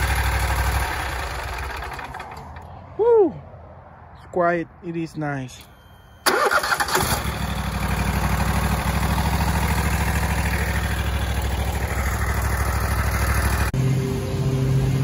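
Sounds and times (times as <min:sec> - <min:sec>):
mower engine cranking and starting: 0:00.0 - 0:02.7, 0:06.2 - 0:13.7.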